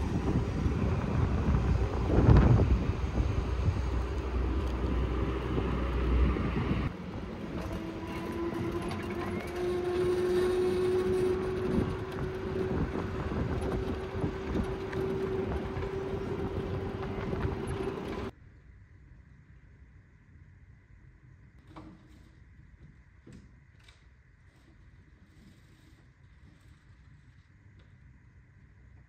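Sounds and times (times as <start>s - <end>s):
wind buffeting microphone: 0.0s - 18.3s
mechanical hum droning: 0.0s - 29.0s.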